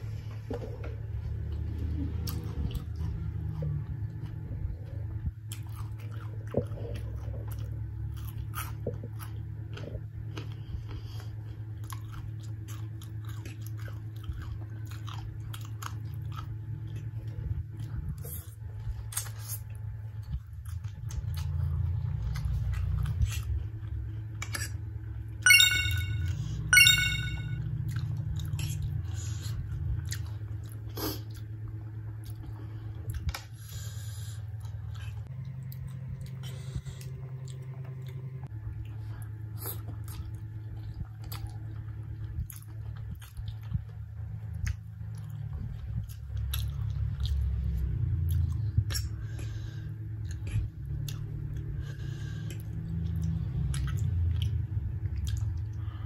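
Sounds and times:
chewing and slurping noodles: 0.1s - 25.0s, 27.9s - 56.0s
short high-pitched squeaks: 25.5s - 27.6s.

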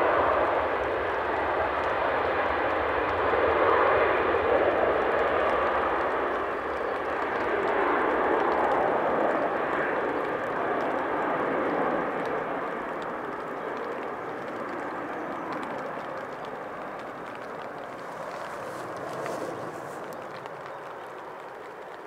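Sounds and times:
jet engines rushing: 11.4s - 22.0s
wheel spray on wet runway: 12.8s - 22.0s.

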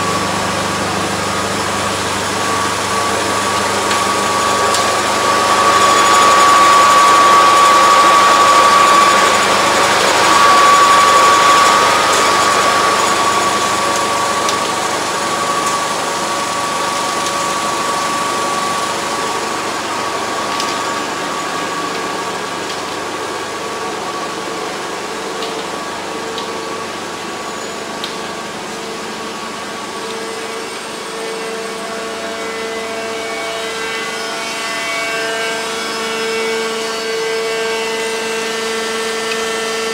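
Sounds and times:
drilling rig machine whine: 0.0s - 39.9s.

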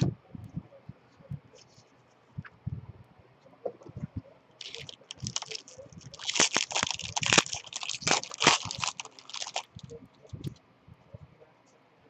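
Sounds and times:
foil wrapper crinkling and tearing: 4.6s - 9.9s.

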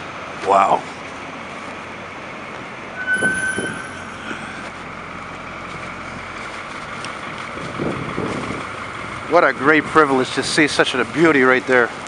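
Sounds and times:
diesel engine idling: 0.0s - 12.0s
high ringing tone: 3.0s - 5.0s.

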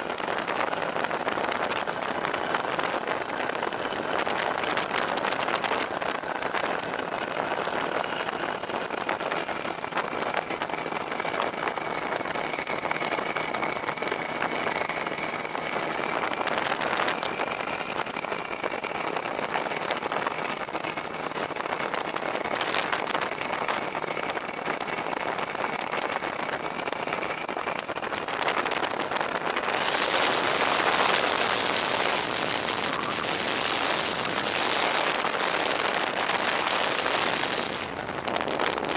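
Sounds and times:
aircraft engine and propeller: 0.0s - 38.9s
faint steady whine: 0.0s - 38.9s
rush of air: 28.4s - 38.9s.

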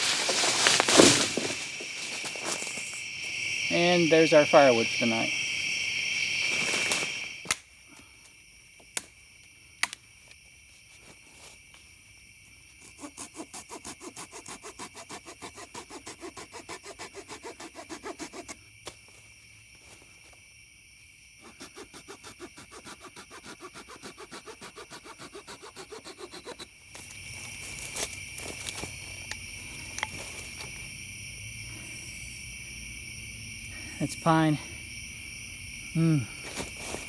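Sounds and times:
hand saw cutting branch: 12.8s - 18.6s, 21.4s - 26.7s.

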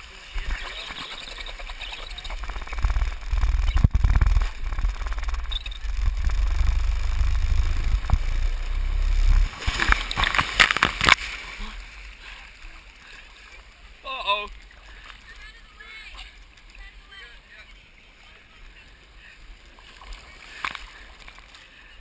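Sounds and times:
person sliding down water slide: 0.0s - 14.4s
splash into pool: 9.2s - 12.0s.

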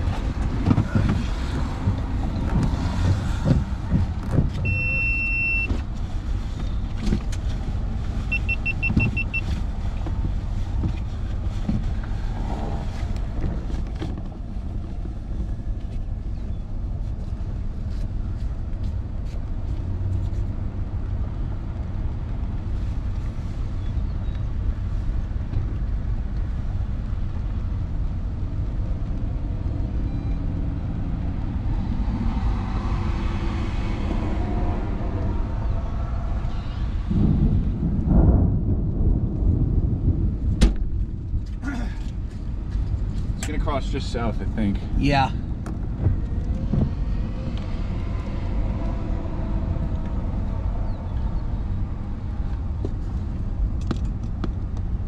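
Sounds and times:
vehicle rumble: 0.0s - 55.0s
long electronic beep: 4.6s - 5.7s, 8.3s - 9.4s
short beeps: 4.6s - 5.7s, 8.3s - 9.5s.

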